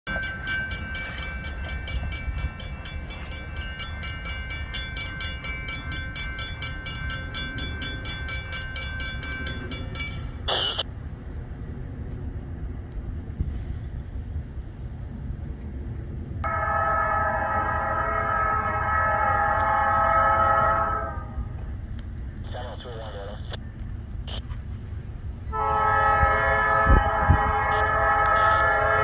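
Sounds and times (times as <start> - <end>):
railroad crossing bell ringing: 0.1 - 10.8, 16.4 - 21.6, 25.5 - 29.0.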